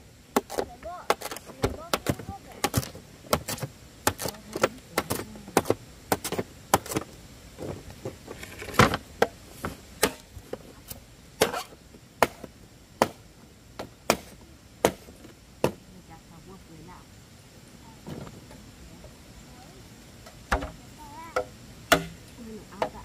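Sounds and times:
blade chopping bamboo: 0.3 - 7.1, 10.0 - 10.3, 11.4 - 13.2, 13.8 - 15.8, 21.9 - 22.2.

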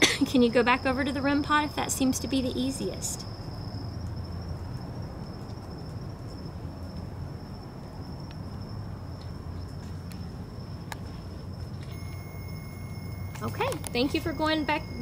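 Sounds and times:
high insect trill: 0.0 - 15.0
low outdoor rumble: 0.0 - 15.0
electronic alarm tone: 11.9 - 15.0.

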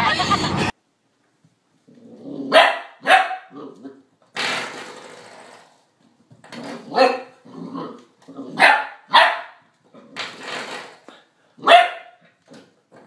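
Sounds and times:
puppy barking: 2.5 - 3.8, 6.9 - 7.4, 8.5 - 9.7, 11.6 - 12.3.

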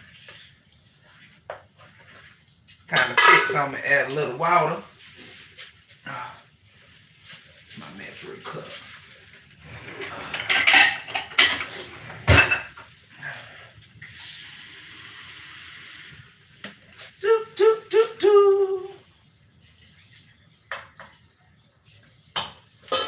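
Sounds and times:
kitchen utensils clattering: 2.8 - 4.4, 9.6 - 12.9, 22.4 - 23.0
tap running water: 13.8 - 17.2, 19.3 - 22.1
person singing short high notes: 17.2 - 19.0.

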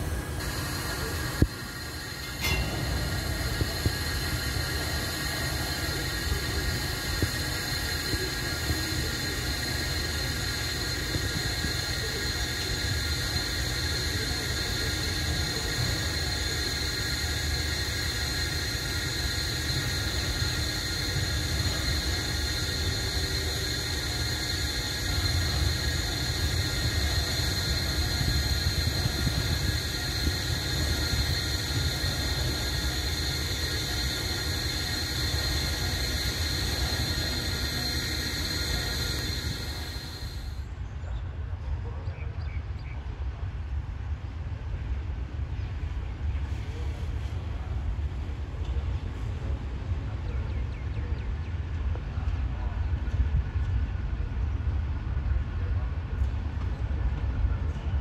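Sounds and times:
steady high-pitched tone: 0.0 - 40.7
diesel locomotive rumble: 0.0 - 42.4, 43.0 - 58.0.

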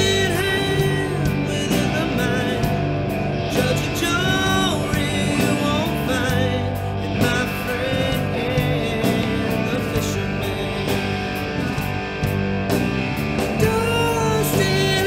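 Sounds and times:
person singing: 0.0 - 12.1, 13.5 - 15.0
rock music: 0.0 - 15.0.

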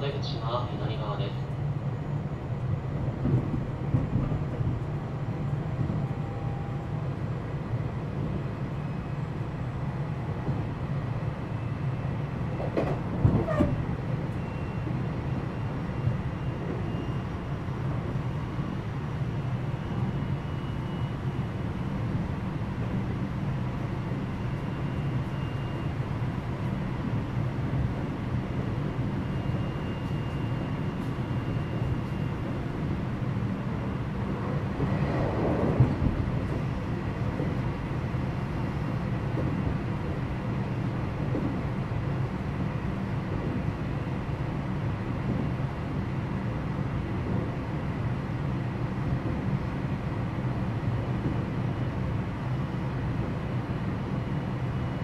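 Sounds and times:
train rattle: 0.0 - 6.2, 12.5 - 14.1, 26.0 - 44.5
train wheels rumbling on rail: 0.0 - 55.0.

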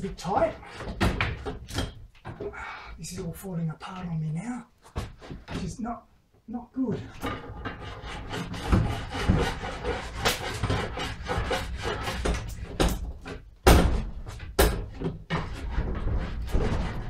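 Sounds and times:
wood creaking and scraping: 0.0 - 5.9, 6.9 - 17.0
sharp knocks: 8.5 - 15.6.

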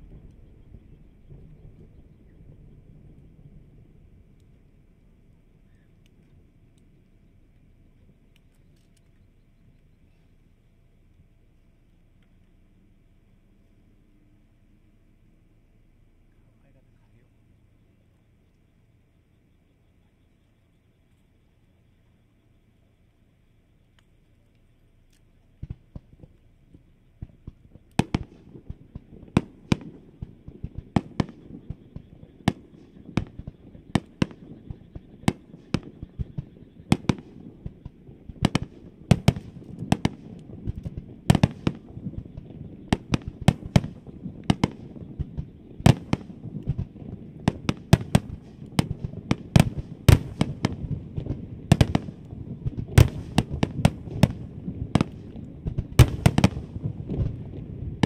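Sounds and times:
low rumble of echoing reports: 0.0 - 8.3, 9.2 - 58.0
fireworks bursting with bangs: 25.6 - 58.0.

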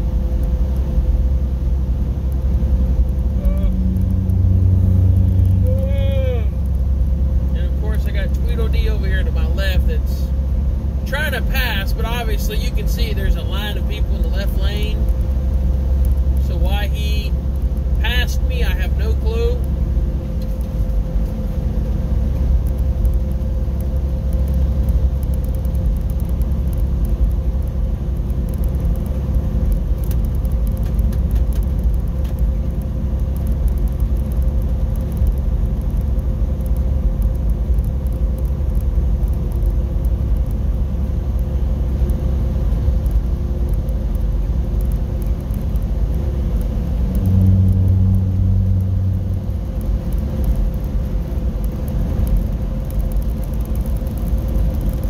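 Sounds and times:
engine and tyres on wet road: 0.0 - 55.0
low hum: 0.0 - 55.0.

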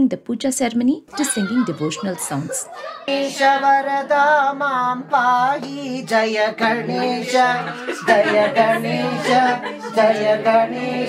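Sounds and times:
group singing a devotional song: 2.7 - 11.0.

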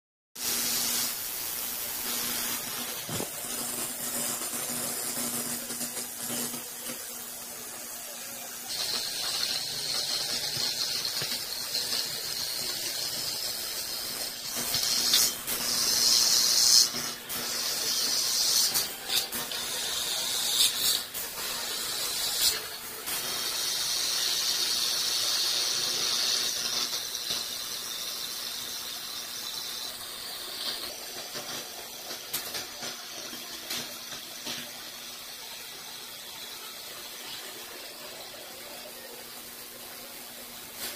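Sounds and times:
cutting machine hiss: 0.4 - 40.9.

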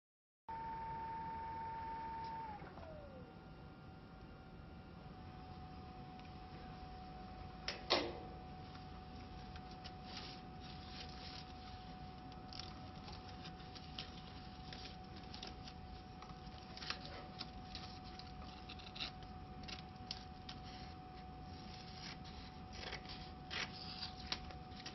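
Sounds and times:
faint hum with thin whine: 0.5 - 24.9
paper labels rustling and clicking: 8.6 - 24.9.

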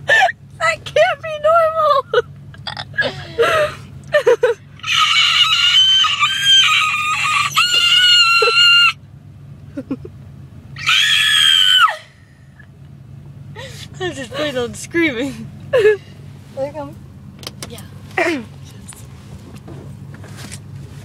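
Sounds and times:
girl screeching: 10.8 - 12.1.

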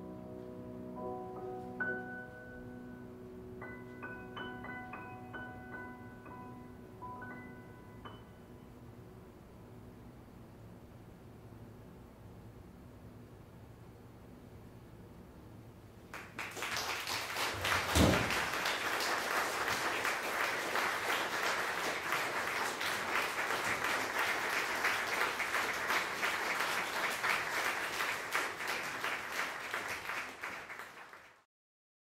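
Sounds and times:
audience applauding: 16.1 - 31.5.

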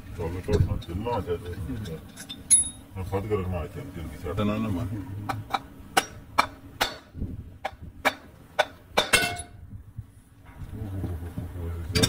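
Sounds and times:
metallic taps on aluminium housing: 5.5 - 9.6.

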